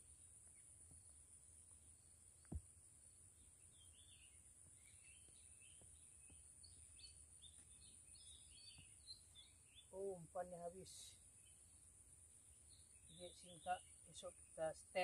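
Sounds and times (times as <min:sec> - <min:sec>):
faint bird chirps: 0:00.0 - 0:15.0
soft thump: 0:02.4 - 0:02.7.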